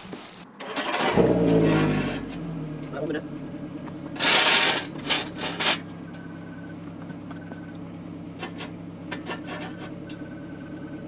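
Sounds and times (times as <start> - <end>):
metal ramps scraping and knocking: 0.6 - 2.5, 4.1 - 6.0, 8.3 - 10.2
steady low hum: 2.0 - 11.0.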